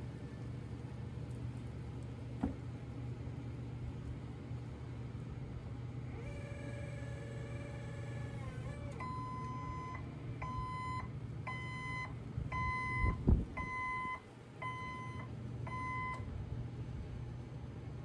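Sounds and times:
forklift backup alarm beeping: 8.9s - 16.3s.

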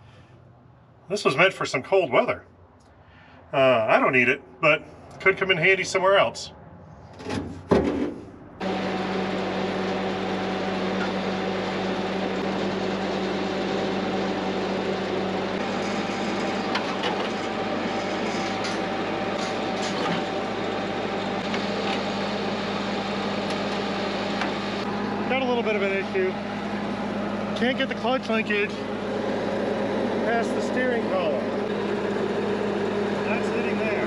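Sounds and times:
motor humming: 8.6s - 34.0s.

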